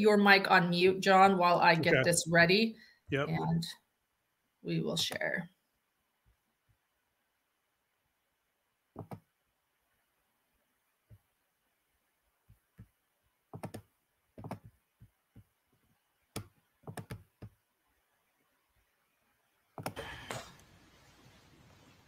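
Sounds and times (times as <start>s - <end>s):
keyboard and mouse clicks: 9.0s - 9.3s, 13.5s - 15.5s, 16.3s - 17.6s, 19.8s - 20.4s
steady hiss: 19.9s - 22.0s.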